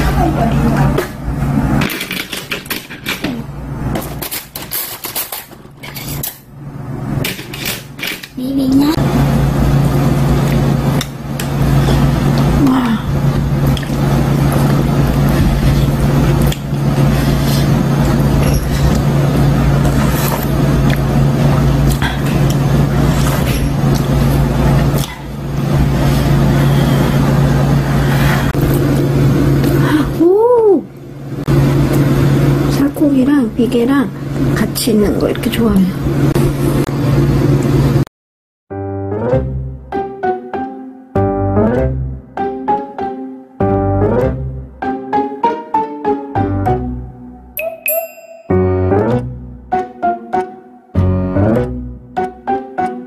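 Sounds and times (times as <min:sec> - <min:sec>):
loud low mechanical hum: 0:00.0 - 0:38.0.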